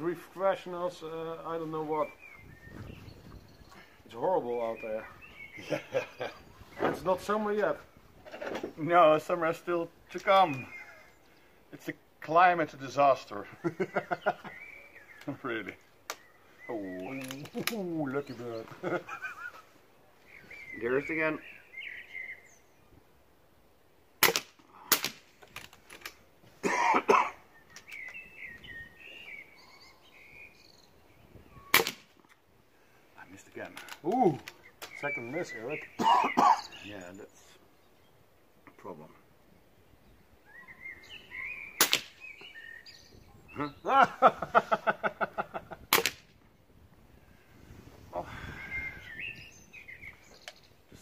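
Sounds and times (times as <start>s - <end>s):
man laughing: 5.6s - 6.5s, 13.4s - 14.6s, 18.6s - 19.8s, 43.6s - 45.9s
air rifle cracks: 24.2s - 26.2s, 31.7s - 32.4s, 41.8s - 42.2s, 45.9s - 46.3s
faint rustle: 46.4s - 51.0s.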